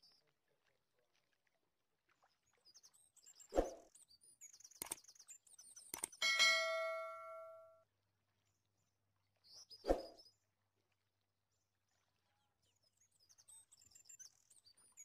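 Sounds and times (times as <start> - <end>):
glass bowls knocking together: 6.2 - 7.7
glass bowl ringing: 6.2 - 7.8.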